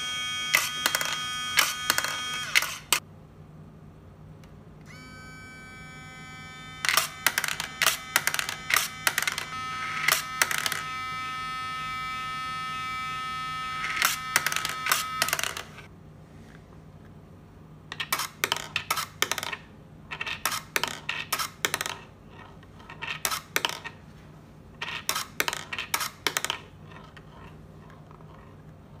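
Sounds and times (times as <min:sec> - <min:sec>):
toy motor whining: 0:00.0 - 0:03.0, 0:04.9 - 0:15.9
metal ball clicking on track: 0:06.9 - 0:09.5, 0:10.1 - 0:10.9, 0:14.0 - 0:15.8.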